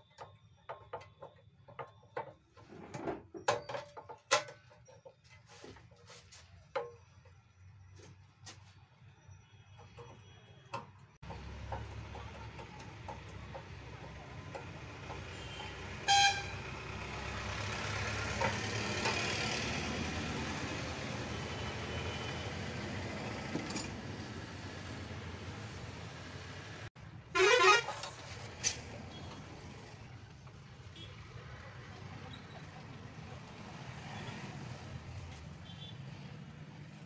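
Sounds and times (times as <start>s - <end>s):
vehicle engine rumble: 0.1s - 37.0s
horn toot: 15.5s - 16.7s, 27.3s - 28.2s.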